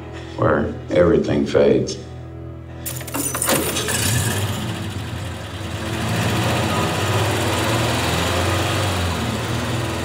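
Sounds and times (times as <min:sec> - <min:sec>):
car engine running: 0:03.5 - 0:10.0.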